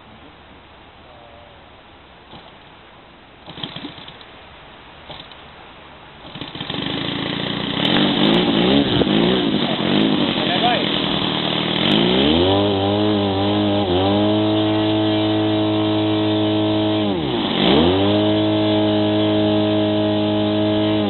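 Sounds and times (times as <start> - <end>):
model airplane engine revving: 3.4 - 4.2, 6.2 - 21.0.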